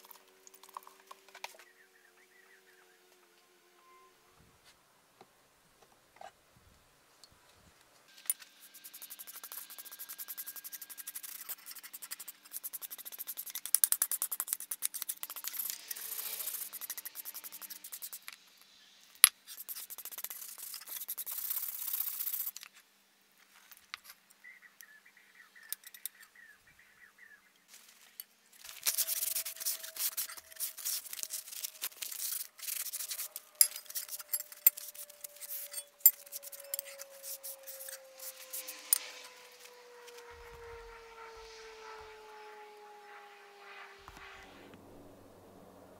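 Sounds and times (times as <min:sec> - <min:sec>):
scrubbing rust off steel blade: 0:08.2 - 0:18.4, 0:19.4 - 0:22.6, 0:28.6 - 0:39.3.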